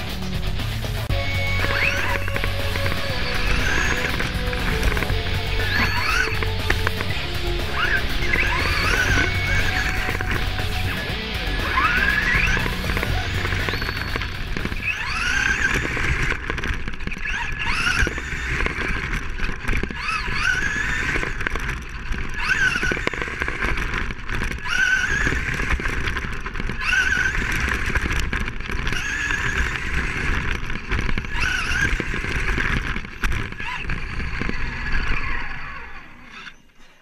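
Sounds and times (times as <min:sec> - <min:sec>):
low rumble: 0:00.0 - 0:16.5
electric motor whine: 0:00.0 - 0:37.0.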